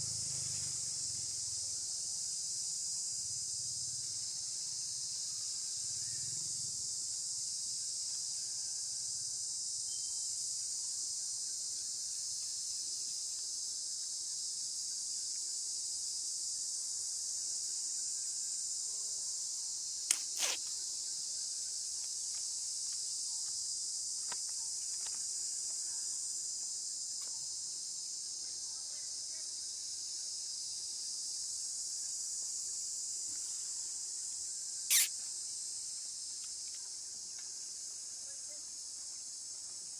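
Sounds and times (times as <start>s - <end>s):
insects chirring: 0.0s - 39.9s.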